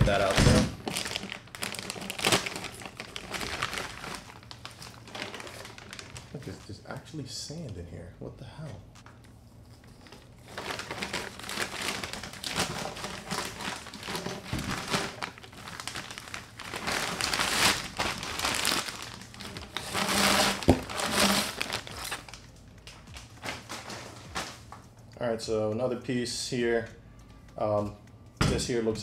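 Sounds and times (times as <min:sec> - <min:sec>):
plastic bag crinkling: 0:00.0 - 0:06.8, 0:09.8 - 0:24.9.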